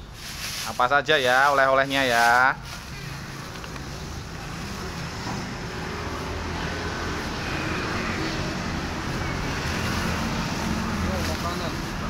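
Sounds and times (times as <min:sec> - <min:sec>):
plastic bags rustling: 0:00.0 - 0:05.0.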